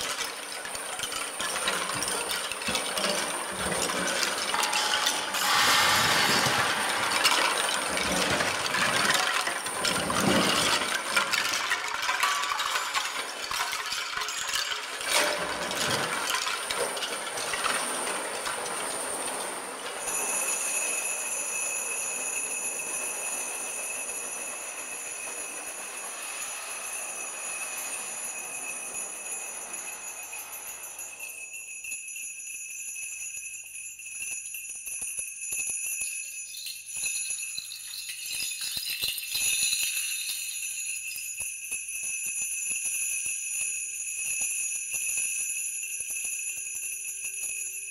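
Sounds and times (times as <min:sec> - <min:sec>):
shaken bamboo sticks clattering: 0:00.0 - 0:20.1, 0:35.6 - 0:41.4
high metallic ringing: 0:00.0 - 0:47.9
small bells jingling: 0:00.0 - 0:47.9.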